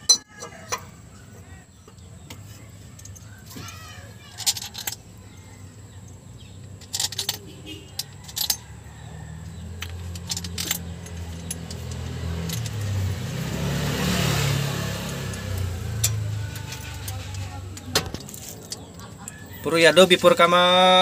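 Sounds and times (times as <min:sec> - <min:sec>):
metallic clinks of engine parts: 0:00.0 - 0:13.6, 0:15.0 - 0:20.3
vehicle engine passing: 0:08.9 - 0:20.4.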